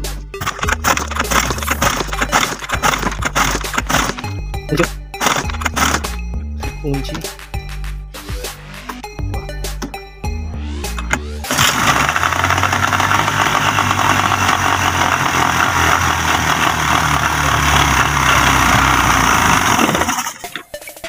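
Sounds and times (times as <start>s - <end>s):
outboard motor running: 0.4s - 4.3s, 5.2s - 6.1s, 11.0s - 20.6s.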